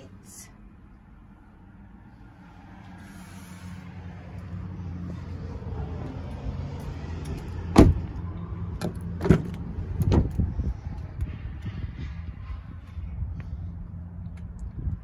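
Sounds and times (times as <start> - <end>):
truck door clunk: 7.7 - 8.1, 8.8 - 10.4.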